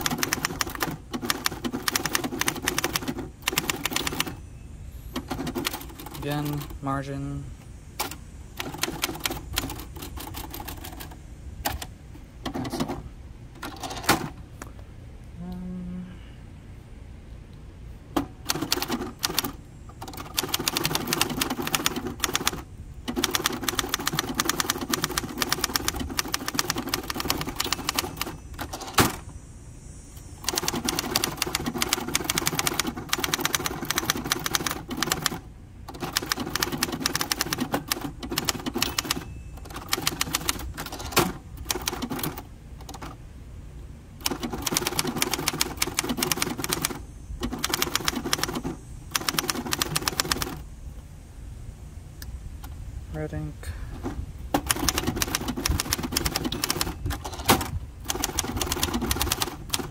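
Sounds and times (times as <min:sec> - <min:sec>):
manual typewriter key clacks: 0:00.0 - 0:04.4, 0:08.0 - 0:11.1, 0:18.2 - 0:29.2, 0:30.4 - 0:43.2, 0:44.2 - 0:50.6, 0:54.6 - 0:59.9.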